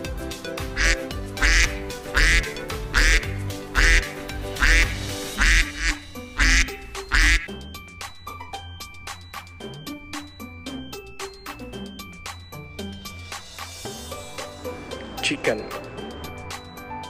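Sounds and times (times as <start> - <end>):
background music: 0.0 - 17.0
duck quacking: 0.8 - 7.5.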